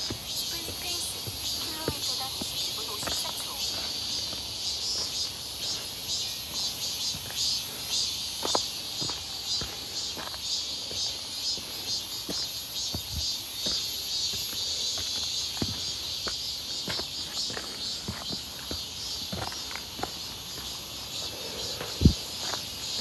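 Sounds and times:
cicadas singing: 0:00.0 - 0:23.0
footsteps on dirt and rock: 0:00.0 - 0:23.0.

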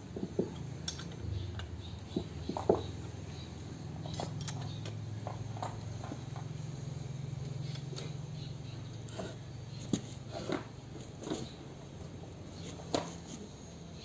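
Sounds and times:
steady low hum: 0:00.0 - 0:14.0
spanner clinking on bolts: 0:00.2 - 0:10.1.

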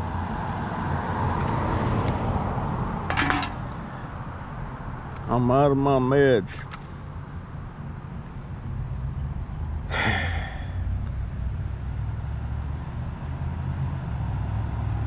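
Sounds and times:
tyres rolling on asphalt: 0:00.0 - 0:05.4.

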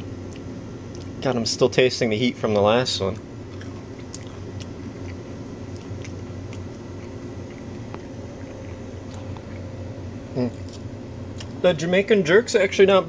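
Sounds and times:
steady low hum: 0:00.0 - 0:13.0
mouth sounds tasting: 0:10.3 - 0:11.6.

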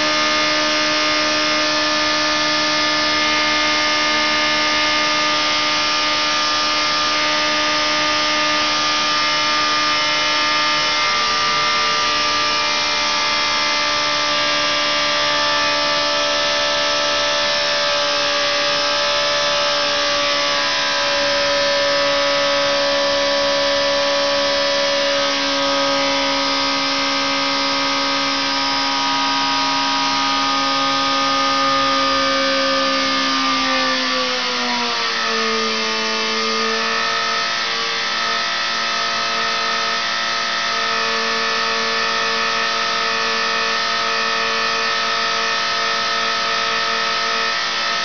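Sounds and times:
engine droning on a dynamometer: 0:00.0 - 0:48.0.

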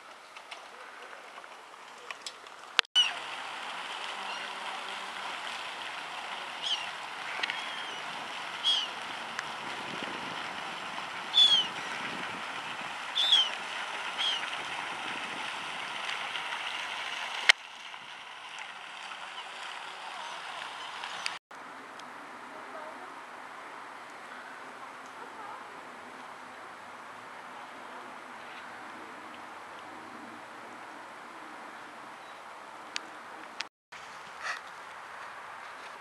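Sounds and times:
waterbirds calling: 0:03.0 - 0:21.4.

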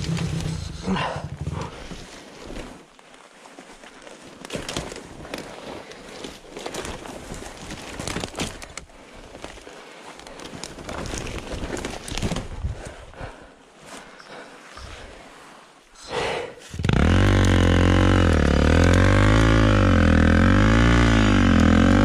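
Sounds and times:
twigs crackling underfoot: 0:00.0 - 0:15.1.

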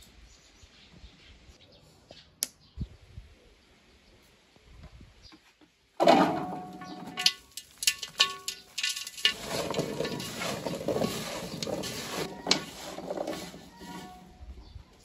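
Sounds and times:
clinks on metal basin: 0:06.0 - 0:14.1.

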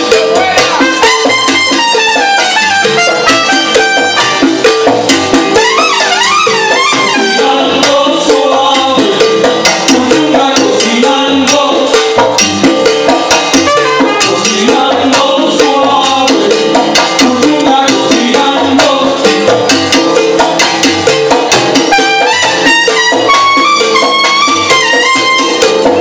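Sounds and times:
driving percussion rhythm: 0:00.0 - 0:26.0
trumpets playing: 0:00.1 - 0:07.9, 0:13.6 - 0:14.8, 0:21.9 - 0:26.0.

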